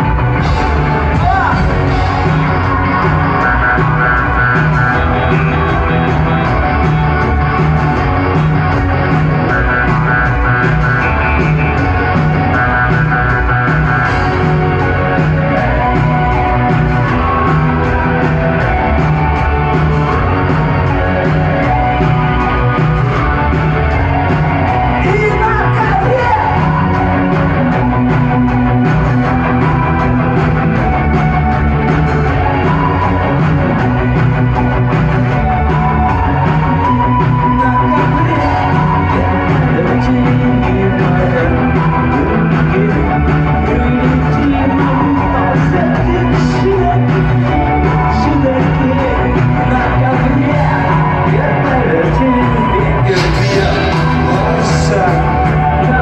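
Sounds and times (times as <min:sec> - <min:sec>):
live rock band playing: 0:00.0 - 0:56.0
person singing: 0:35.4 - 0:56.0.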